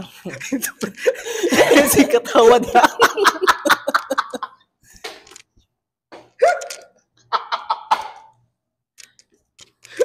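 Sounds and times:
man laughing: 0.3s - 4.6s, 6.4s - 8.4s.

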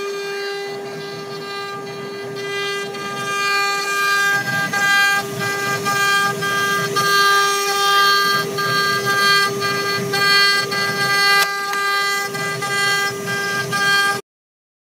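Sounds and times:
bit carving wood: 0.0s - 14.2s
router spindle whining: 0.0s - 14.2s.

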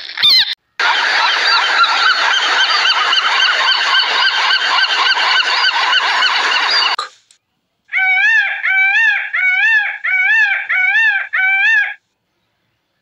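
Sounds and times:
birds honking in chorus: 0.2s - 7.0s.

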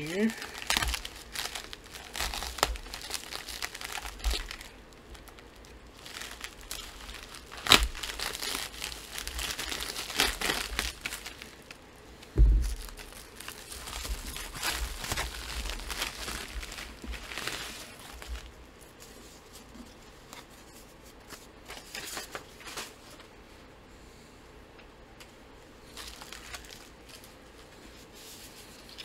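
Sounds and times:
sharp crackle: 0.0s - 11.7s
plastic mailer crinkling and tearing: 0.0s - 11.8s, 12.6s - 18.6s, 25.8s - 27.4s
thump: 12.4s - 12.8s.

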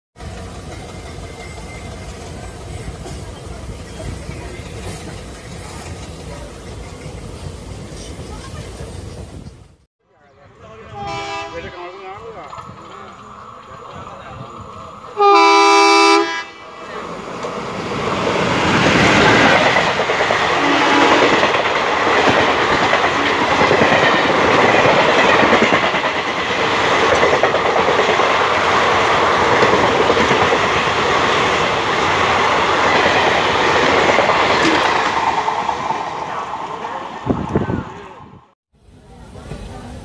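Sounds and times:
train passing at speed: 0.2s - 40.0s
wheels clacking over rail joints: 16.8s - 37.6s.

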